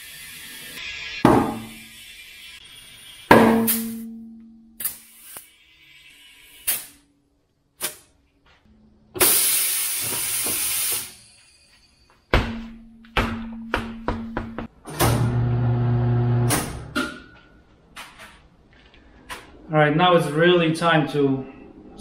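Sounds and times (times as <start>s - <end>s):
compressed air hissing: 0.0s - 4.0s, 4.8s - 7.0s, 9.2s - 11.8s.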